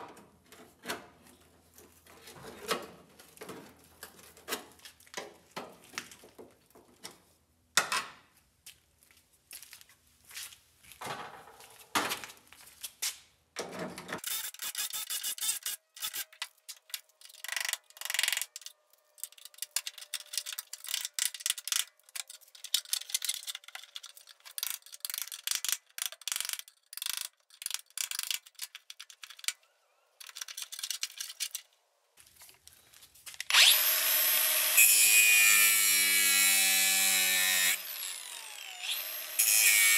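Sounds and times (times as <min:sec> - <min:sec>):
angle grinder whine: 0:33.5 - 0:39.9.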